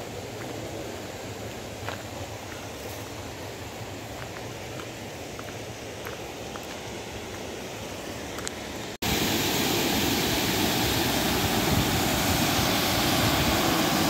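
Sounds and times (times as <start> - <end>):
faint outdoor hiss: 0.0 - 14.0
waterfall rushing: 8.6 - 14.0.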